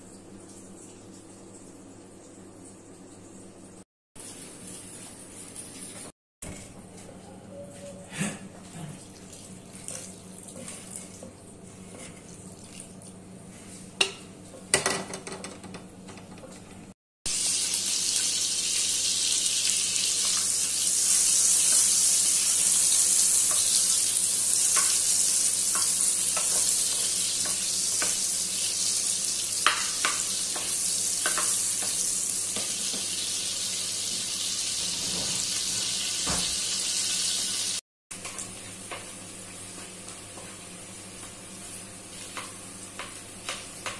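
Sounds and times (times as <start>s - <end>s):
oil sizzling in a wok: 17.3s - 43.9s.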